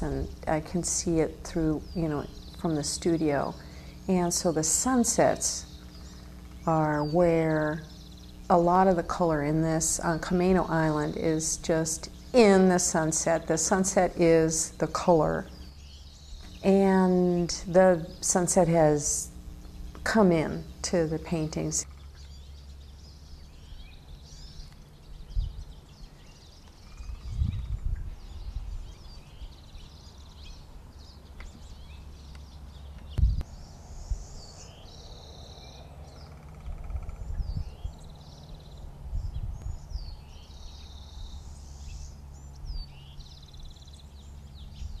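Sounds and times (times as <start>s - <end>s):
birds chirping: 0.0s - 45.0s
steady low hum: 0.0s - 45.0s
dull low thumps: 33.1s - 33.5s.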